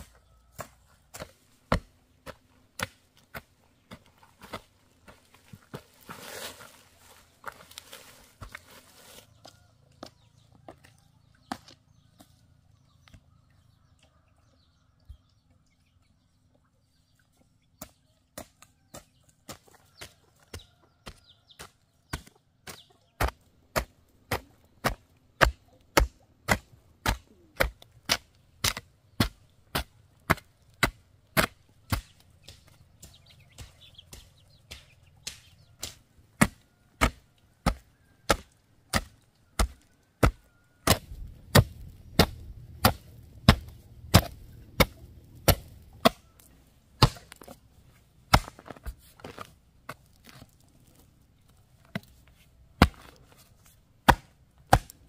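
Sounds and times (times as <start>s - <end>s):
blade chopping wood: 21.6s - 46.4s, 47.0s - 47.6s, 48.3s - 50.6s, 52.8s - 53.2s, 54.0s - 55.0s.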